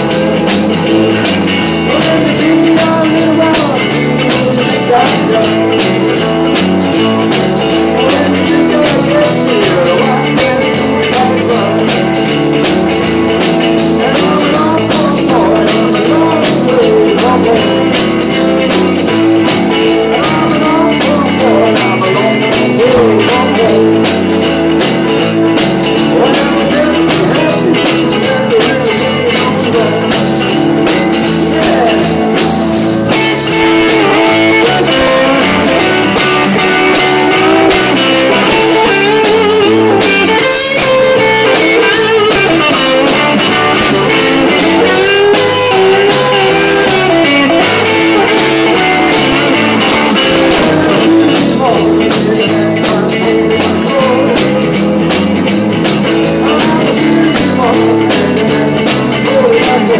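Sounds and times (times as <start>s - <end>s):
drum kit fast beat: 0.0s - 59.9s
live rock band playing: 0.0s - 59.9s.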